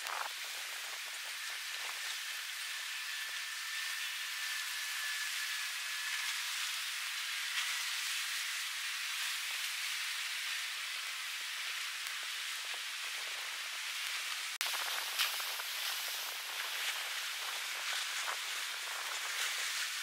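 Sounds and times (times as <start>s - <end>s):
steady rain falling: 8.9s - 20.0s.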